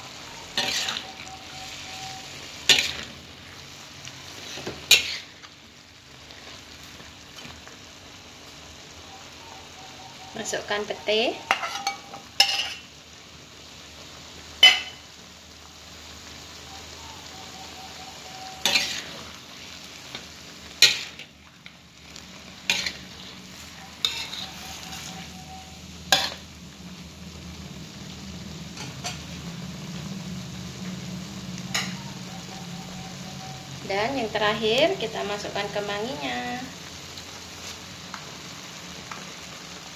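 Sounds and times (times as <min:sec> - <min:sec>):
spatula scraping a wok: 0:00.0 - 0:07.7, 0:11.4 - 0:12.9, 0:17.6 - 0:26.5
food sizzling in a wok: 0:00.0 - 0:39.9.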